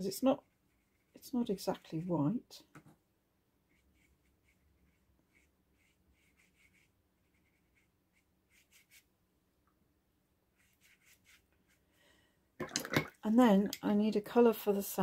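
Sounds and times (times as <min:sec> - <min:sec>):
brush scratching on paper: 0:00.0 - 0:02.2, 0:03.6 - 0:09.1, 0:10.5 - 0:11.8.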